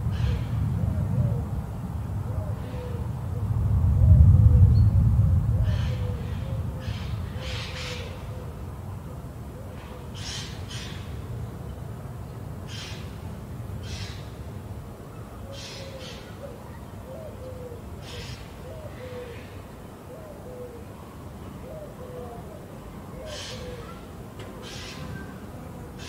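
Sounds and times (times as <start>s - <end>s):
low rumble of thunder: 0.0s - 9.0s
bird hooting: 15.4s - 19.5s, 20.1s - 20.9s, 21.6s - 25.4s.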